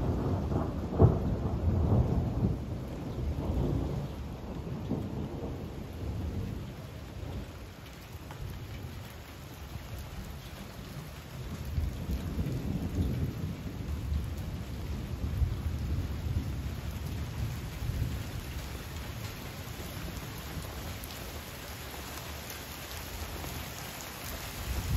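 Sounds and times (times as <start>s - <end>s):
thunder rumbling: 0.0s - 7.7s, 10.8s - 20.9s, 24.6s - 24.9s
heavy rain: 0.0s - 24.9s.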